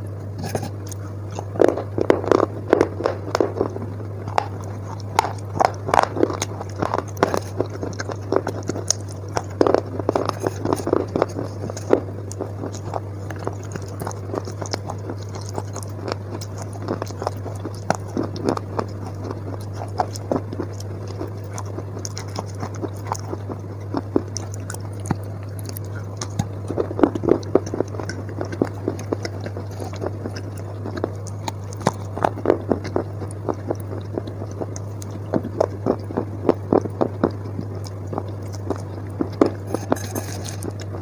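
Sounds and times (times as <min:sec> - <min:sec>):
gritty crunching and squelching chewing: 0:00.0 - 0:41.0
steady low hum: 0:00.0 - 0:41.0.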